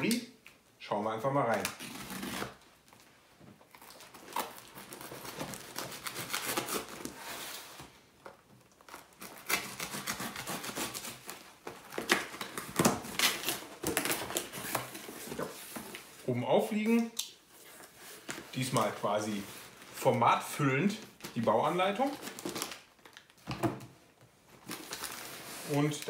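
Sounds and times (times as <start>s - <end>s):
knife slitting packing tape: 4.3s - 7.2s, 8.8s - 15.0s.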